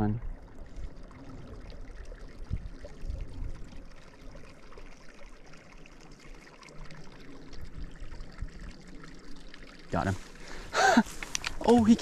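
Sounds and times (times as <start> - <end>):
small creek trickling: 0.0 - 12.0.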